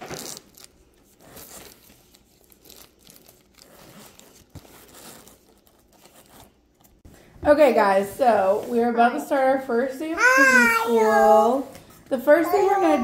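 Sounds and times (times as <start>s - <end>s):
plastic folders and papers rustling: 0.0s - 7.2s.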